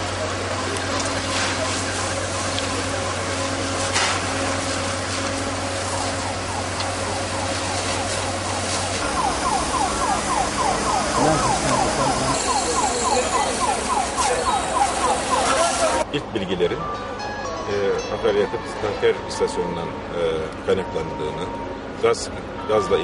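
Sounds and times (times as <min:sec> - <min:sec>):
emergency siren yelping: 0:00.0 - 0:16.0.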